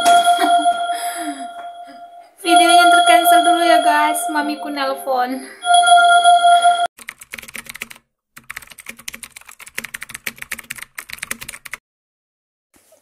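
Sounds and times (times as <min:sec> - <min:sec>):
keyboard typing: 0:06.6 - 0:11.8.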